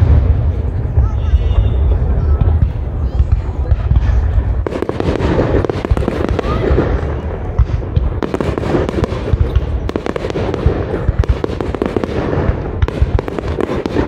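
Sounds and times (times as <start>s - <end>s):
low rumble: 0.0s - 8.2s
fireworks bangs and crackles: 0.0s - 14.0s.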